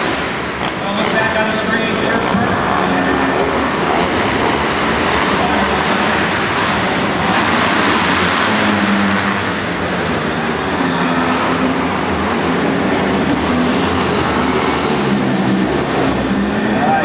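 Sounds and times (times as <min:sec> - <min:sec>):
race motorcycle engines revving: 0:00.0 - 0:17.0.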